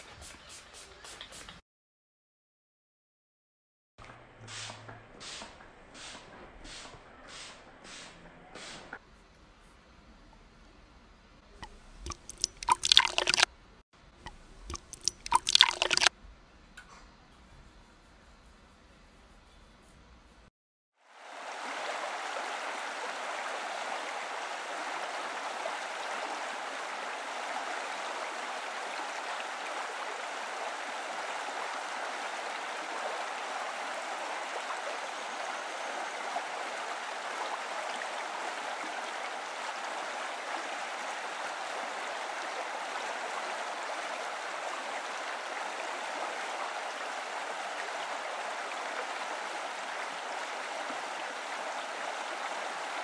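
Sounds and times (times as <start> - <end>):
running water rushing: 11.6 - 13.5, 14.4 - 16.1, 21.0 - 53.0.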